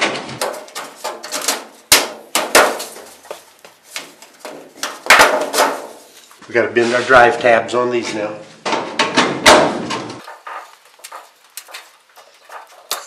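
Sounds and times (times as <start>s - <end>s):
sheet metal clanking and rattling: 0.0s - 3.1s, 8.6s - 10.7s
sharp knocks on metal: 8.6s - 10.2s.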